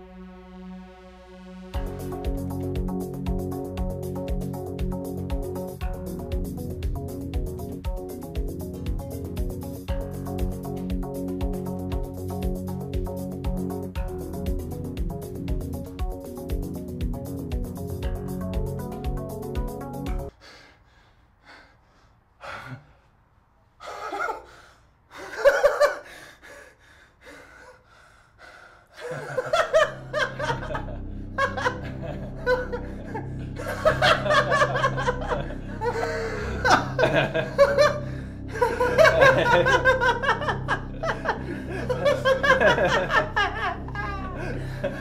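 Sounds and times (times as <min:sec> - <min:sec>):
background music: 0:00.0 - 0:20.3, 0:29.0 - 0:45.0
men laughing: 0:25.2 - 0:26.0, 0:29.0 - 0:45.0.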